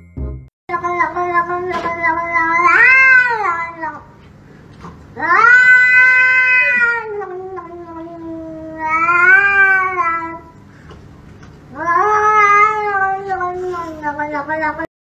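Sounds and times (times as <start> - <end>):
cat meowing: 0.7 - 4.0, 5.2 - 10.5, 11.7 - 14.9.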